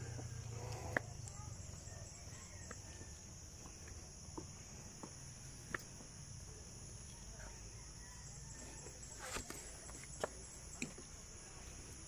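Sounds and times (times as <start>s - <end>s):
footsteps on concrete steps: 0.0s - 6.2s
insects droning: 0.0s - 12.0s.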